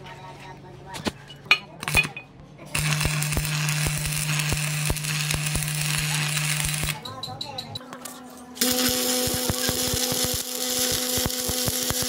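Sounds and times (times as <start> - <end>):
welding arc crackling hiss: 2.8 - 7.0, 8.6 - 12.0.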